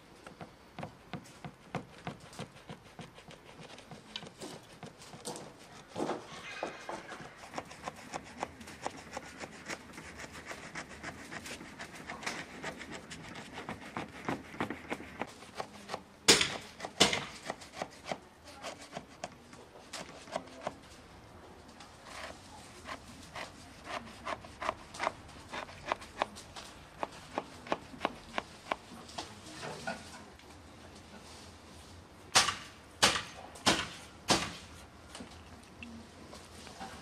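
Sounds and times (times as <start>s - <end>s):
knife scoring dough in tray: 0.2s - 20.9s, 22.0s - 29.0s.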